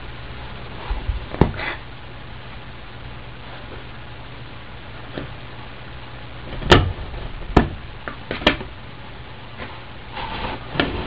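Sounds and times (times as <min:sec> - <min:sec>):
sharp knocks: 0:06.5 - 0:08.7.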